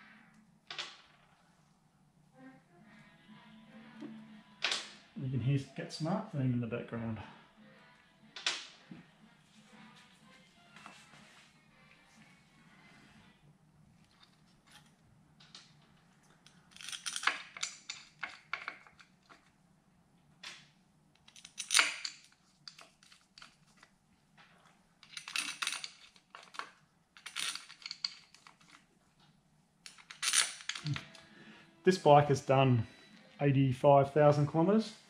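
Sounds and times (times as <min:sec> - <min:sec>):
small steel parts clinking: 0:16.4 - 0:19.4, 0:21.2 - 0:23.8, 0:25.0 - 0:28.8, 0:29.8 - 0:31.2.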